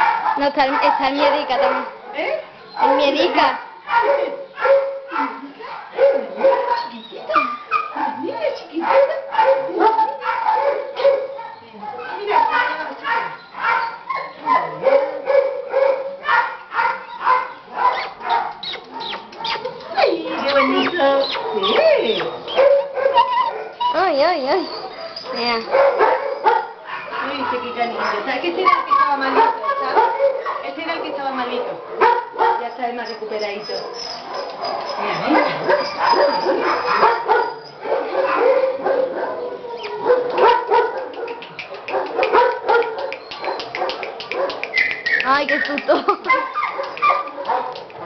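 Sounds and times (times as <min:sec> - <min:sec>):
puppies yelping and whimpering: 0:06.3 - 0:08.4, 0:17.9 - 0:25.7, 0:26.3 - 0:30.0, 0:32.9 - 0:40.2, 0:44.8 - 0:47.3.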